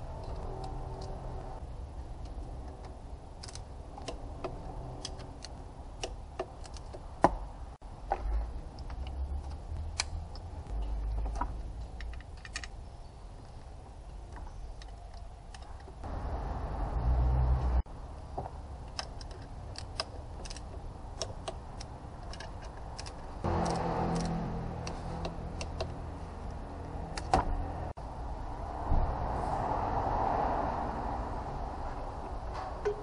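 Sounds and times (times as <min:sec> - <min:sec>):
dull rumble of handling: 0:00.0 - 0:28.0
hand tools clicking and tapping: 0:02.2 - 0:07.4, 0:18.8 - 0:26.6.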